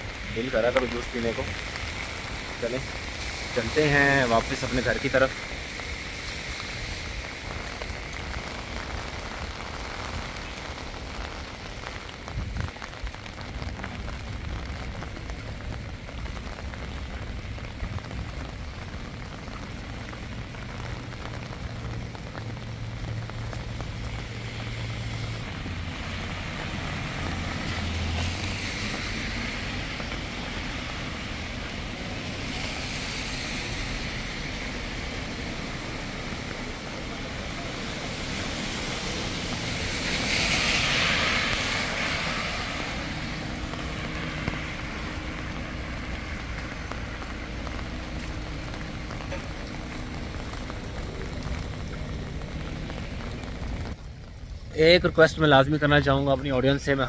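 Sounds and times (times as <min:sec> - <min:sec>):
steady rain falling: 0:00.0 - 0:57.0
vehicle engine hum passing: 0:19.6 - 0:54.0.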